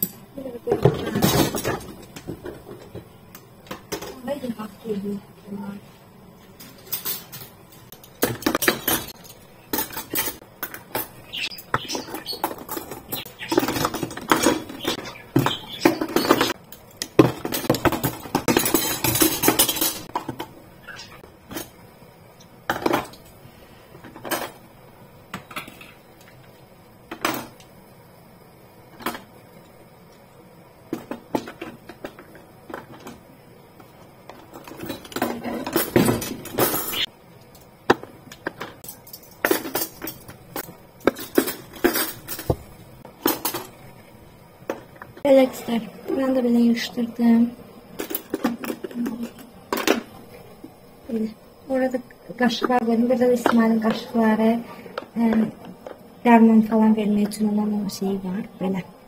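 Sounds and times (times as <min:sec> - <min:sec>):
metal cutlery clattering: 0:00.9 - 0:02.2, 0:06.6 - 0:20.4, 0:34.5 - 0:37.1, 0:38.4 - 0:42.6, 0:43.2 - 0:43.8.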